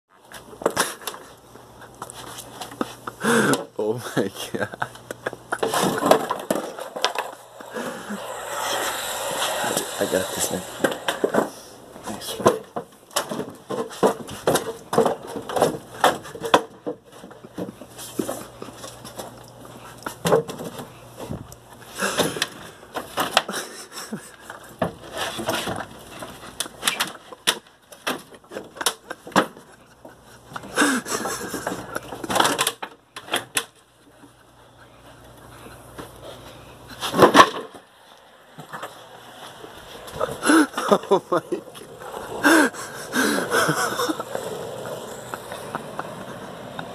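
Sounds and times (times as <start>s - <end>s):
wooden ladder and board knocking: 12.4s - 17.8s.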